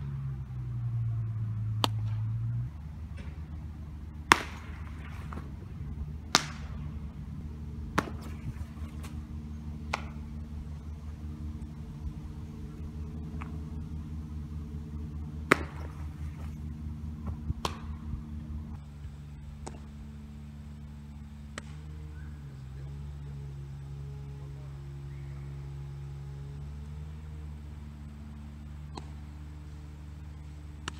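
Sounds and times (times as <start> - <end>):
steady low hum: 0.0 - 30.9
baseball smacking into mitt: 1.8 - 2.2, 4.2 - 6.9, 7.9 - 9.2, 9.8 - 10.4, 15.4 - 16.6, 17.2 - 18.1.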